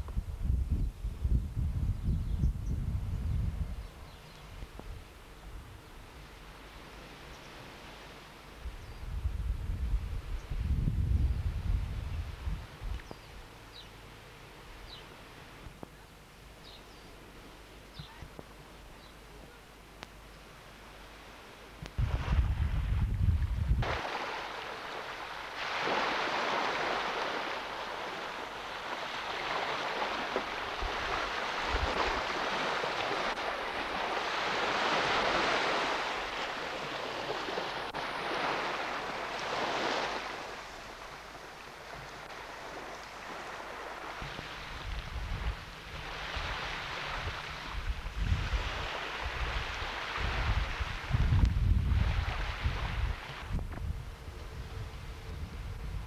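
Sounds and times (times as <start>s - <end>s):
wind buffeting microphone: 0.0s - 5.9s, 8.6s - 13.3s, 21.8s - 24.4s, 29.5s - 38.9s, 42.3s - 56.0s
small waves on sandy shore: 2.6s - 56.0s.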